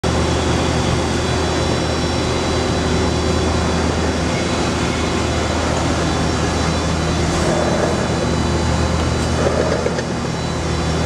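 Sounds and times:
surface grinder humming: 2.6s - 11.0s.

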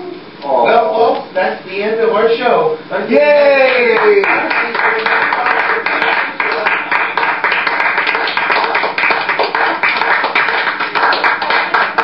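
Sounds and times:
applause: 3.7s - 12.0s.

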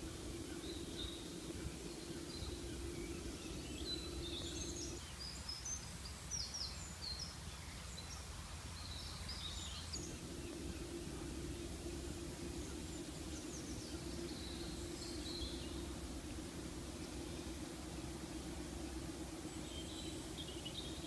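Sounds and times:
low outdoor rumble: 0.0s - 6.0s, 8.4s - 21.0s
faint low hum: 0.0s - 21.0s
small birds chirping: 0.0s - 21.0s.

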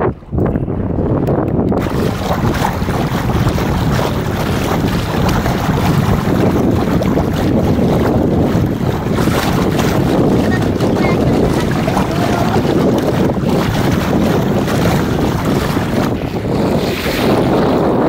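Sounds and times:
wind buffeting microphone: 0.0s - 18.0s
water splashing along hull: 0.1s - 18.0s.

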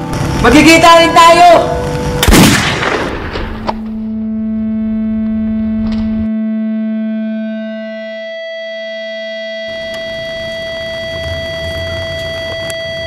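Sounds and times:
higher synthesizer tones: 0.0s - 2.2s, 3.8s - 13.0s
low electronic hum tone: 0.0s - 2.4s, 3.1s - 13.0s
loud sudden hit: 2.2s - 3.7s.

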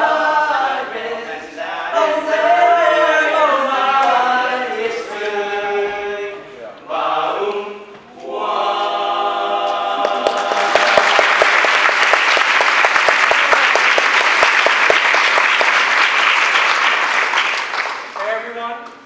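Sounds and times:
audience applause: 10.0s - 18.3s.

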